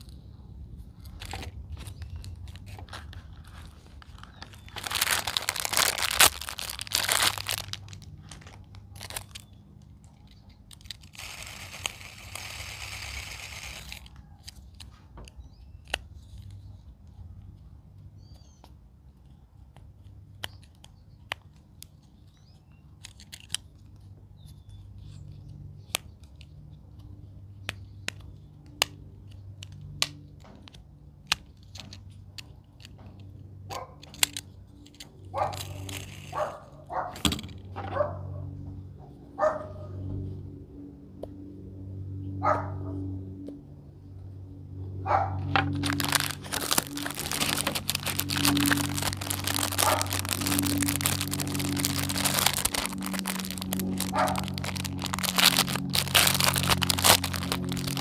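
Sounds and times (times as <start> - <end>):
plastic packaging crinkling and tearing: 0.9 - 16.7, 20.4 - 23.9, 34.0 - 36.5, 45.4 - 58.0.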